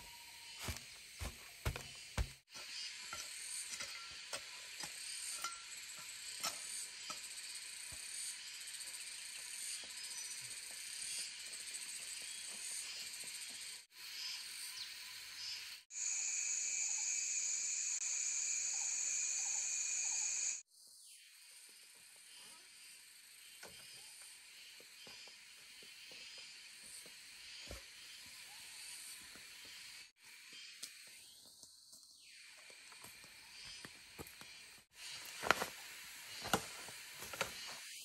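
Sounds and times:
high-pitched insect drone: 0:00.0 - 0:20.6.

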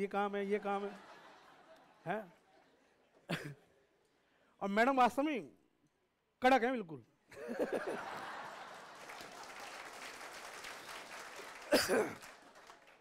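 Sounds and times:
audience applause: 0:07.8 - 0:13.0.

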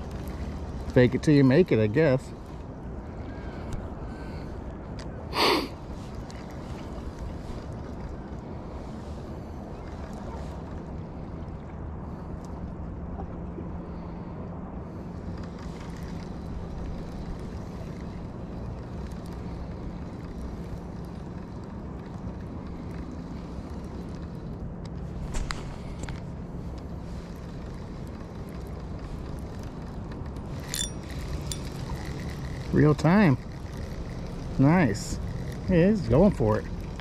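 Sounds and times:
low engine hum: 0:00.0 - 0:37.0
wind: 0:00.0 - 0:37.0.

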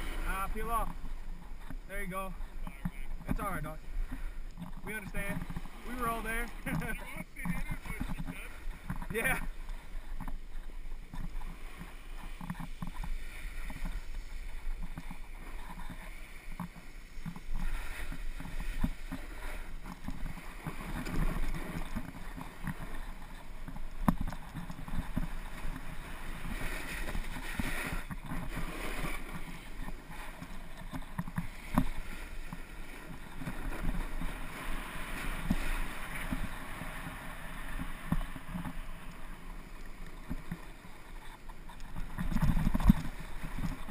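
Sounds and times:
skis scraping over snow: 0:00.0 - 0:43.9
wind rumble on microphone: 0:40.2 - 0:43.9.

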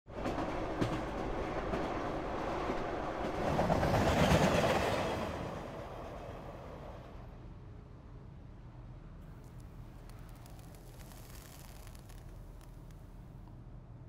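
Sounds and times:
train wheel clatter: 0:00.1 - 0:06.4
passenger train rumble: 0:00.1 - 0:13.6.

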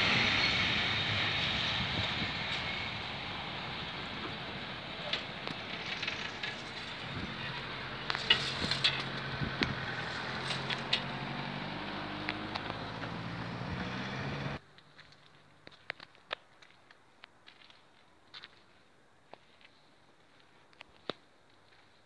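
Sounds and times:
freight train rumbling: 0:00.0 - 0:11.3.

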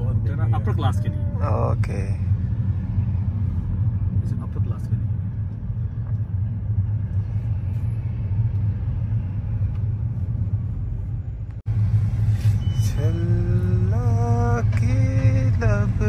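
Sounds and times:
road rumble inside car: 0:00.0 - 0:16.0.

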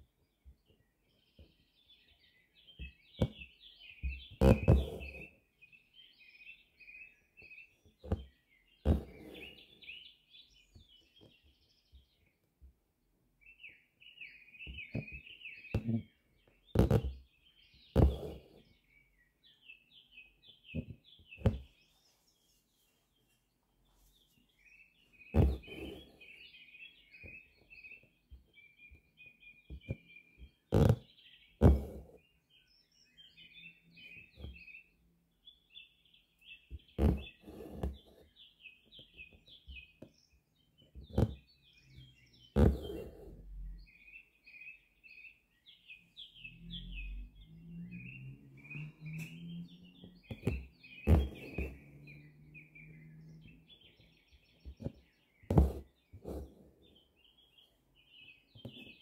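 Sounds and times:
songbirds chirping: 0:00.0 - 0:59.0
needle and thread rasping through fabric: 0:04.1 - 0:05.3, 0:08.0 - 0:09.7, 0:16.7 - 0:17.2, 0:17.9 - 0:18.7, 0:25.3 - 0:26.4, 0:30.7 - 0:32.2, 0:36.7 - 0:38.4, 0:40.9 - 0:41.6, 0:42.5 - 0:43.6, 0:50.0 - 0:52.2, 0:54.6 - 0:57.0, 0:58.6 - 0:59.0
thread swishing through fabric: 0:08.9 - 0:09.5, 0:18.0 - 0:18.4, 0:25.4 - 0:26.2, 0:31.6 - 0:32.1, 0:37.0 - 0:38.2, 0:42.6 - 0:43.4, 0:50.3 - 0:51.9, 0:55.5 - 0:56.7
faint taps: 0:50.3 - 0:51.8.

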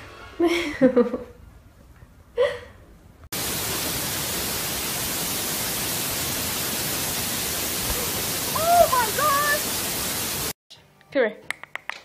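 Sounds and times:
loud steady static hiss: 0:03.4 - 0:10.6.

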